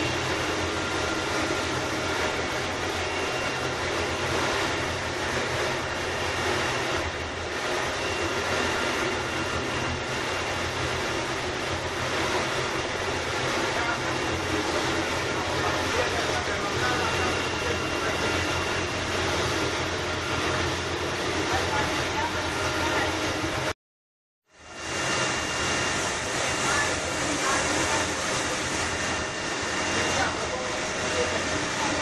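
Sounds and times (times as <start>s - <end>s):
boat engine droning: 0.0s - 23.7s, 24.6s - 32.0s
wind: 0.0s - 23.7s, 24.4s - 32.0s
churning wake hissing: 26.0s - 29.1s.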